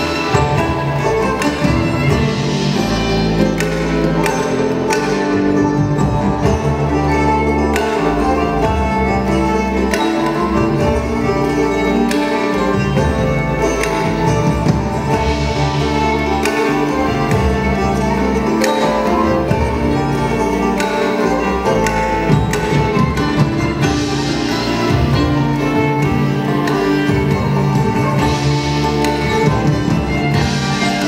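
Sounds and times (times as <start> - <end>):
bowed fiddle melody: 0.0 - 31.0
low bass accompaniment: 0.0 - 31.0
sharp percussive accents: 0.0 - 31.0.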